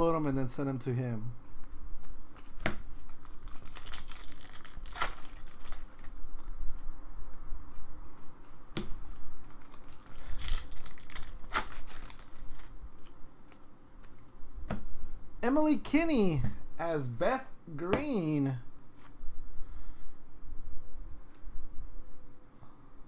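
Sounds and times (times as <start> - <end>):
wrappers tearing and crinkling: 2.9 - 6.2, 9.4 - 13.1.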